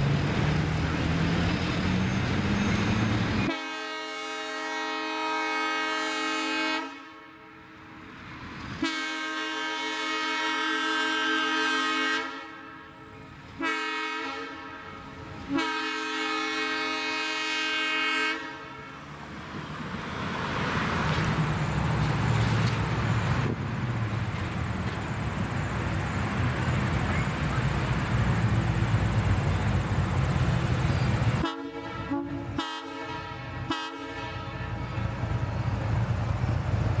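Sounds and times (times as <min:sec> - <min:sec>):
diesel engine rumble: 0:00.0 - 0:03.6, 0:18.5 - 0:32.6, 0:33.4 - 0:37.0
locomotive air horn blasts: 0:03.4 - 0:07.5, 0:08.8 - 0:19.0, 0:31.4 - 0:35.0.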